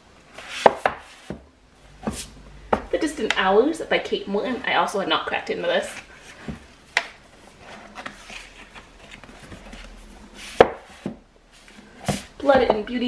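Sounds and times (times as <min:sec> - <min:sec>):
books rustling on a shelf: 0:00.2 - 0:03.6, 0:04.2 - 0:13.0
books knocking on wooden shelf: 0:00.6 - 0:03.0, 0:10.5 - 0:11.2, 0:12.0 - 0:12.9.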